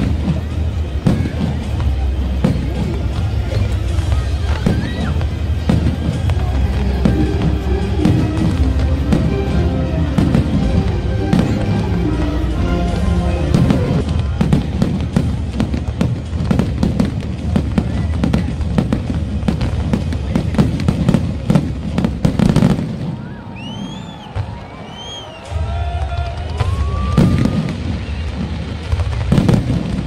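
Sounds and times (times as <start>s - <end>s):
firework whistles: 0.0s - 9.3s, 22.5s - 30.0s
music: 0.0s - 22.8s, 25.1s - 30.0s
fireworks bangs and crackles: 0.0s - 30.0s.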